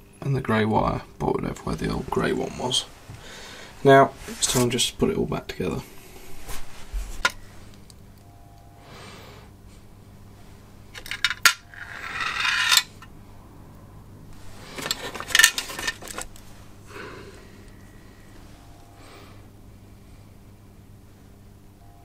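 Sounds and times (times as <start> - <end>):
small parts clicking and clinking: 10.9 - 13.1, 14.8 - 16.4.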